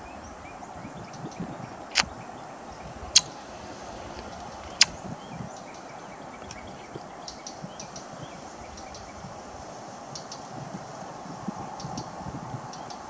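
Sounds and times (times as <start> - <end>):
steady outdoor hiss: 0.0 - 13.0
kingfisher calling sharp ticks: 3.1 - 9.2.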